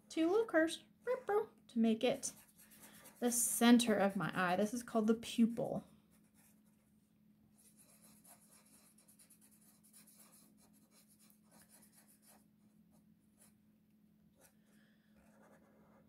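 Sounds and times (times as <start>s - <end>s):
marker scratching on paper: 2.2s - 3.7s, 7.6s - 12.5s, 15.2s - 16.0s.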